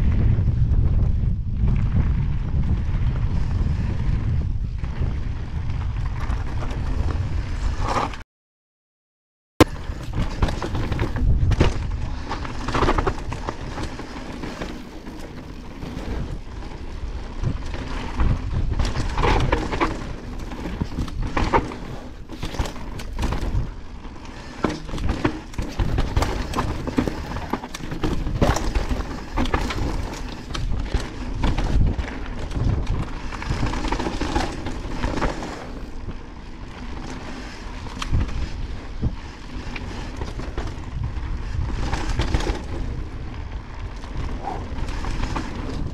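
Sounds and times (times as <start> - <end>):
wind rumble on microphone: 0.0 - 8.2, 9.6 - 45.9
bike tyres crunching over stones: 1.6 - 8.1, 9.6 - 45.9
bike knocking and clattering: 9.6 - 45.9.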